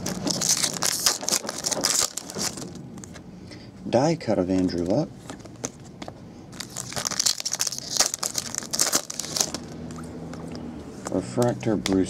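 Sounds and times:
foil card pack crinkling and tearing: 0.0 - 3.2, 6.5 - 10.0.

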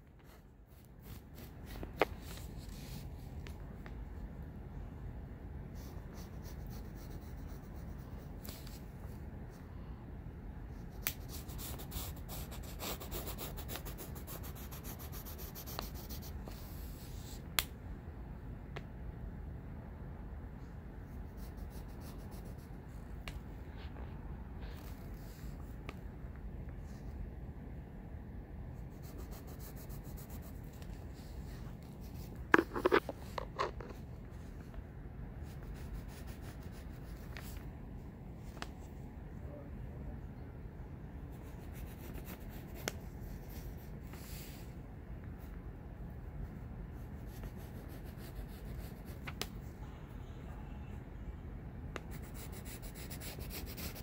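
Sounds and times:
pencil scratching on paper: 0.2 - 3.2, 5.7 - 8.8, 10.9 - 17.3, 21.1 - 22.8, 28.8 - 30.8, 31.9 - 33.1, 35.4 - 37.6, 41.3 - 43.8, 47.0 - 49.3, 52.0 - 54.0.

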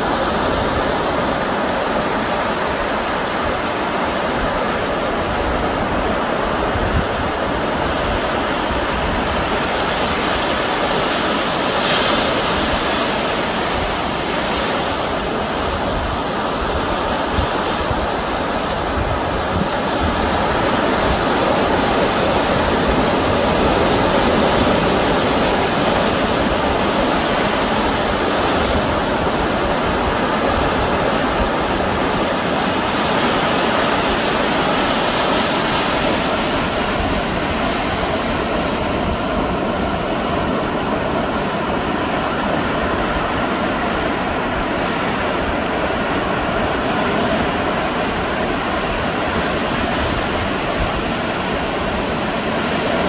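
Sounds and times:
ocean surf rushing: 0.0 - 53.0.

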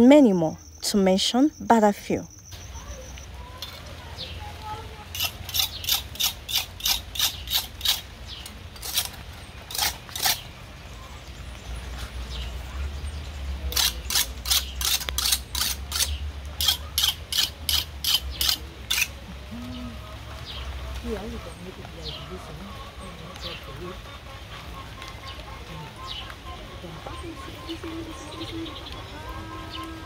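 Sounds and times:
knife scraping fish skin: 5.2 - 8.0, 8.8 - 10.4.

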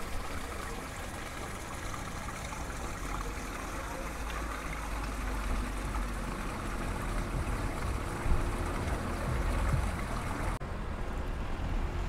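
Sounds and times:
fountain water splashing into basin: 0.0 - 10.6
low rumble: 5.8 - 10.6.

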